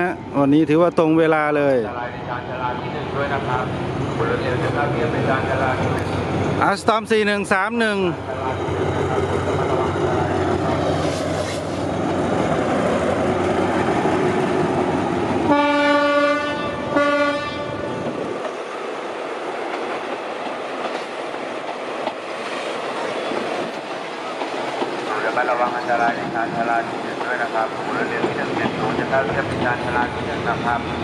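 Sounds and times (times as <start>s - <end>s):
diesel locomotive engine rumbling: 0.0s - 31.0s
train coaches rolling on rails: 0.4s - 31.0s
locomotive horn blasts: 15.5s - 17.8s.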